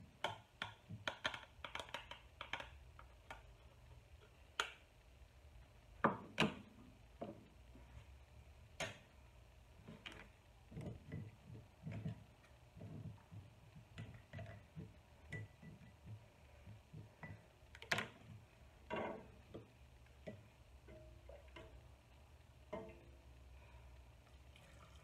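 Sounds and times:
plastic tool tapping: 0.2 - 3.5, 9.9 - 21.8.

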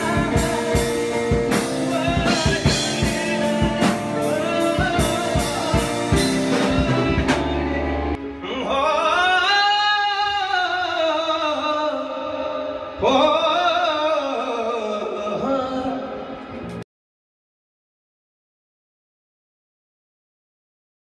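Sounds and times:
backing music with drum beat: 0.0 - 8.2
man singing long held notes: 0.0 - 16.6.

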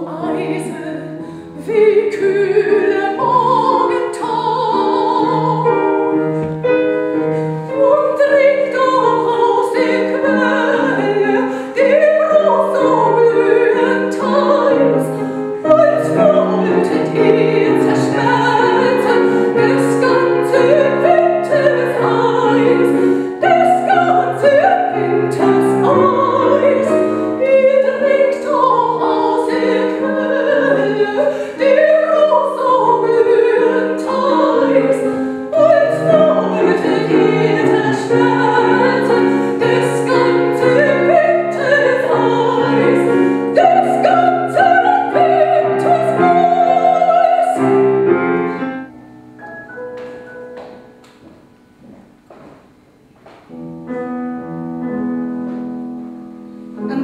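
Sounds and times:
voices singing operatically: 7.7 - 47.8.

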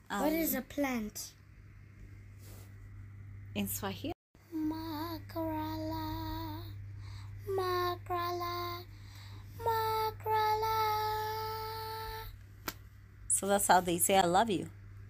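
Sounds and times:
low hum: 0.0 - 15.0
girl singing long notes: 4.4 - 6.8, 7.4 - 8.9, 9.6 - 12.3.

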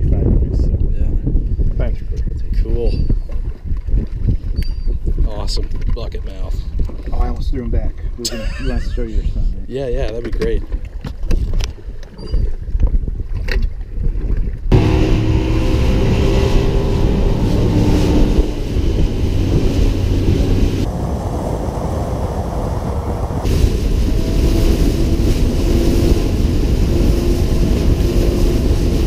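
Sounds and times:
wind noise on microphone: 0.0 - 29.0
water rushing along hull: 13.3 - 29.0
outboard motor running: 14.7 - 20.9, 21.6 - 29.0.

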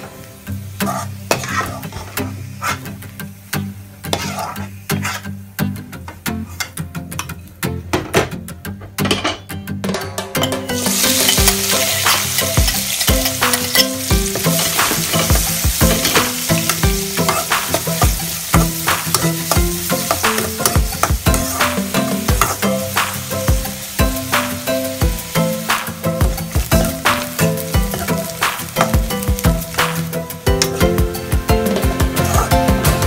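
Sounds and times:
onions sizzling in hot oil: 0.0 - 5.8, 10.7 - 33.0
metal spoon scraping a pan: 0.8 - 3.0, 4.1 - 5.4, 6.4 - 7.4, 10.7 - 22.8, 32.1 - 32.8.

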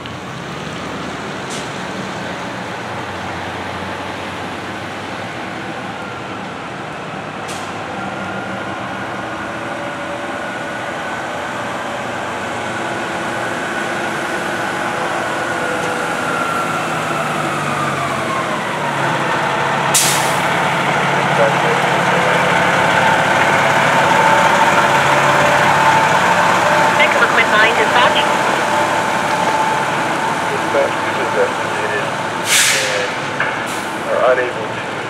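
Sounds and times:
vehicle engines running: 0.0 - 35.0
air brake hiss: 20.0 - 20.4, 32.4 - 33.2.

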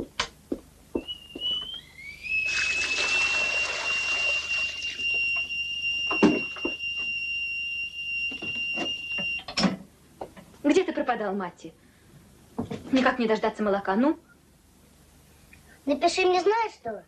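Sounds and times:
kettle whistling: 1.0 - 9.4
water running: 2.4 - 5.4.

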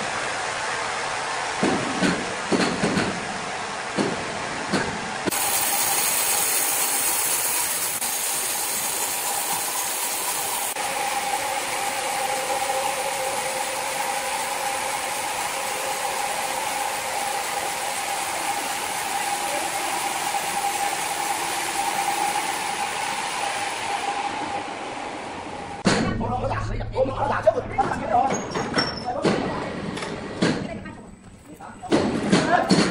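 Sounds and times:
band-saw mill running: 0.1 - 25.8.

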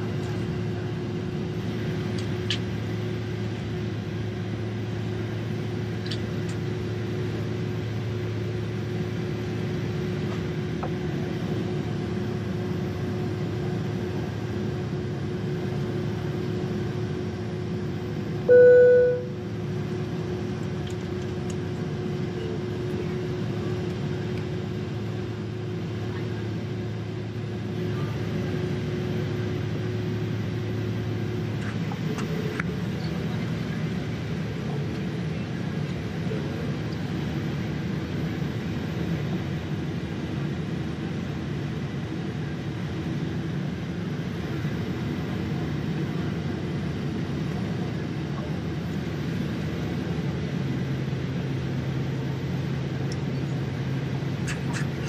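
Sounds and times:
jet engines droning in cabin: 0.0 - 55.0
short chime-like tone: 18.5 - 19.3.

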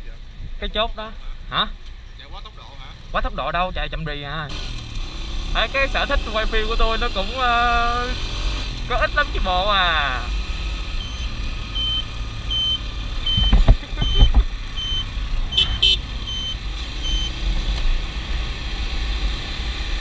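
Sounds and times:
motorbike rumbling: 0.0 - 20.0
low thumps: 12.5 - 16.0.

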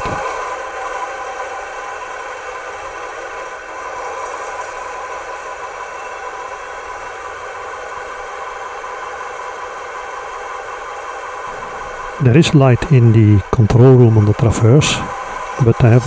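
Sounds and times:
diesel engine idling through speaker: 12.2 - 16.0.

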